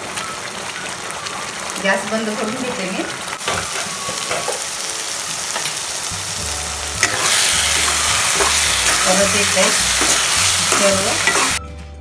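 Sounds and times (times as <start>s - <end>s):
chili paste sizzling in oil: 0.0s - 11.6s
spatula scraping pan: 6.9s - 11.6s.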